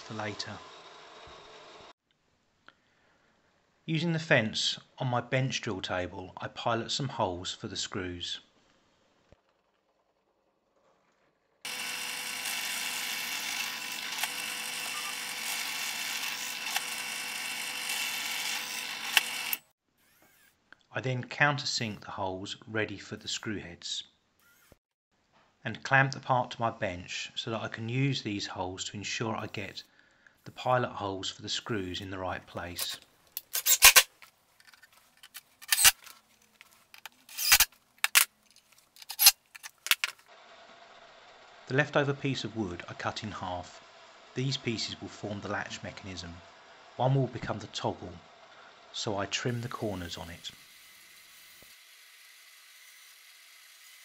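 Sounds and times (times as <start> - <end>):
pillar drill boring plywood: 0.0 - 1.9, 11.7 - 20.6, 24.4 - 24.8, 37.0 - 38.2, 49.4 - 54.0
tools clacking on wooden workbench: 37.0 - 40.2.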